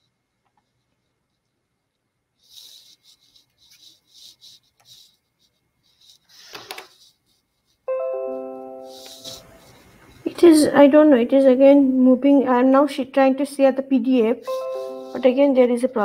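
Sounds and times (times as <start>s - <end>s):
rustling and scraping: 2.4s - 7.9s, 8.8s - 10.5s
loud multi-note chime: 14.5s - 15.4s.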